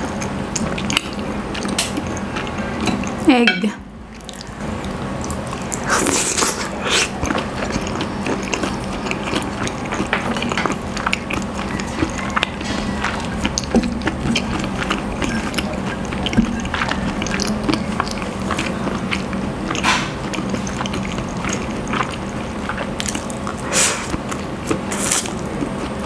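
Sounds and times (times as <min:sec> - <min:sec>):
wet chewing and lip smacking: 0:00.0 - 0:03.3, 0:04.1 - 0:26.0
slurping noodles: 0:05.3 - 0:25.2.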